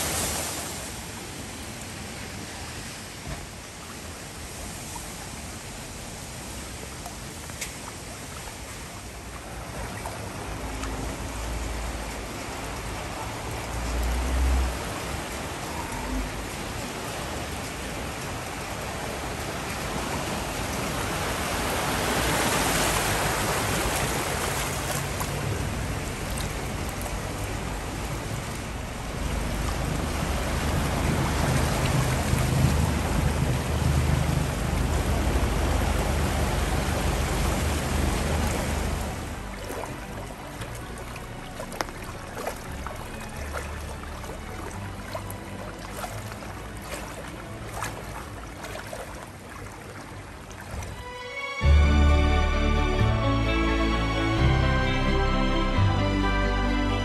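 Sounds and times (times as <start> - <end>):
floodwater rushing and splashing: 0.0 - 57.0
low vehicle rumble: 25.0 - 45.0.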